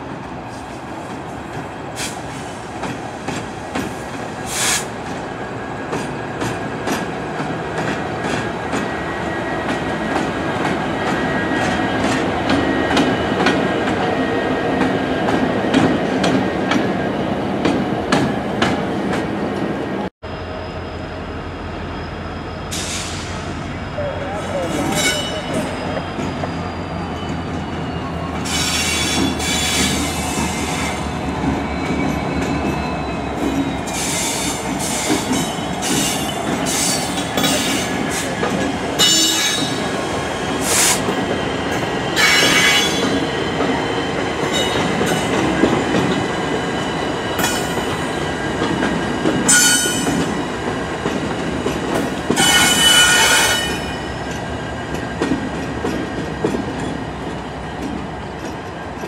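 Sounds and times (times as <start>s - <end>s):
train wheels squealing: 20.3s - 38.4s, 39.0s - 45.6s, 49.4s - 50.4s, 52.0s - 55.2s.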